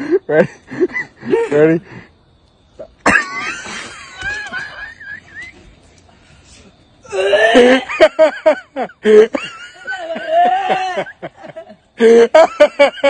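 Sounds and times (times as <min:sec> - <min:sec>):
women laughing with squeals: 0:02.8 - 0:05.7, 0:07.1 - 0:13.0.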